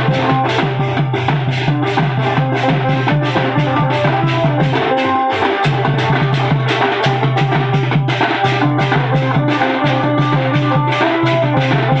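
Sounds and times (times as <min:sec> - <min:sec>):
deep bass line: 0:00.0 - 0:04.9
barrel drums beating: 0:00.0 - 0:12.0
held note melody: 0:00.0 - 0:12.0.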